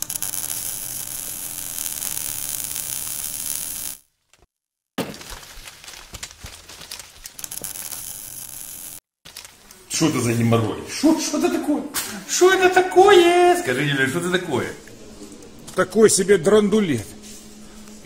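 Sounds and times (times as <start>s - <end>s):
crackling with sharp clicks: 0.0s - 4.5s, 5.2s - 9.6s.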